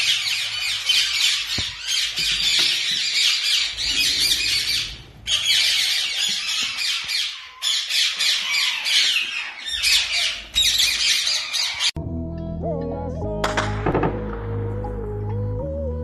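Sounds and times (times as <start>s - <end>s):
parakeets squawking: 0.0s - 12.0s.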